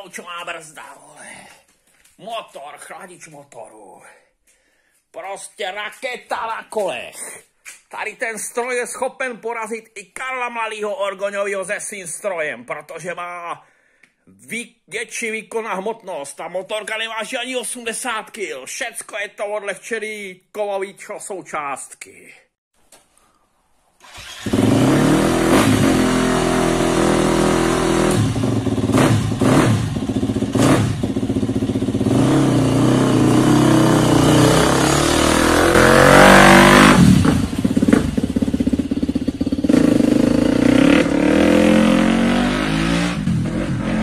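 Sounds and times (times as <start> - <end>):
dirt bike engine revving: 24.0 - 44.0.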